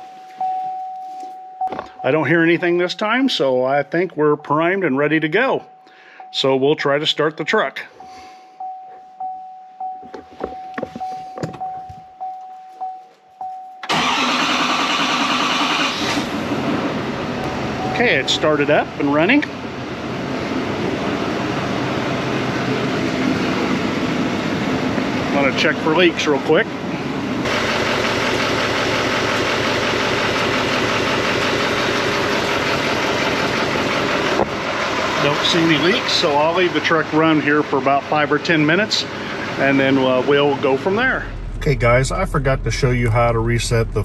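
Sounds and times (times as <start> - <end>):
diesel engine starting and running: 0.0 - 8.8, 13.8 - 44.0
truck chime pulsing: 0.0 - 15.0, 17.3 - 19.5.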